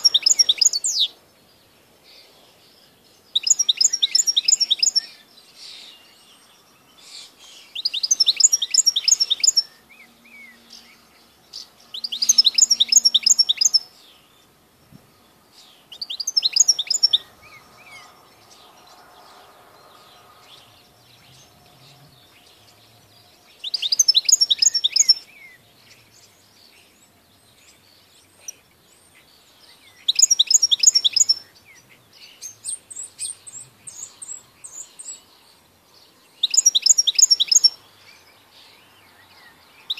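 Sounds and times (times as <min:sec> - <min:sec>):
goldfinch singing: 0:00.0 - 0:39.9.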